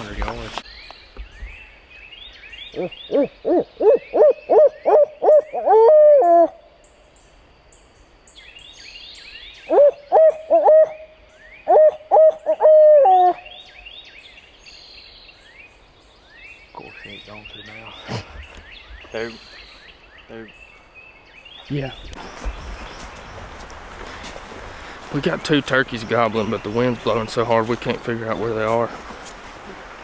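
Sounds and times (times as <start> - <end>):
owl call hoots: 2.7 - 6.6, 9.7 - 13.6.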